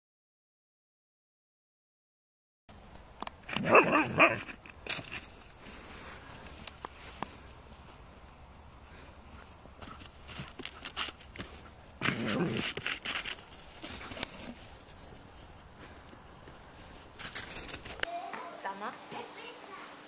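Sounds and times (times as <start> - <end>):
paw-falls crunching frosty grass: 3.4 - 18.0
rustling: 3.4 - 18.1.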